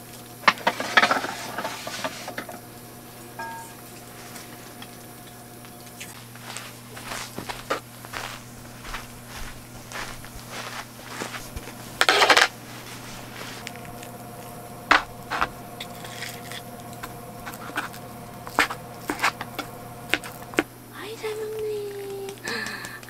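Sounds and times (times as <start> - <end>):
spoon scraping a tin: 12.0 - 12.5, 14.9 - 20.6.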